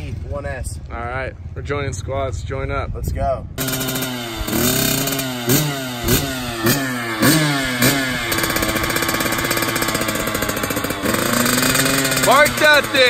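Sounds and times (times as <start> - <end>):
dirt bike engine revving: 3.6 - 13.0.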